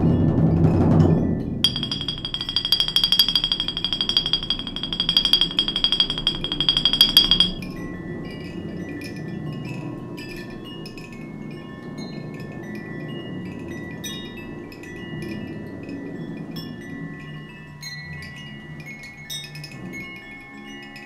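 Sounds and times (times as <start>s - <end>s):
metal chimes ringing: 1.7s - 7.6s.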